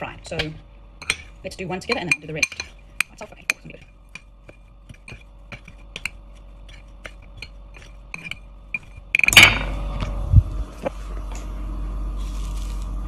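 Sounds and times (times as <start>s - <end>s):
metal spoon scraping ceramic bowl: 1.0s - 9.4s.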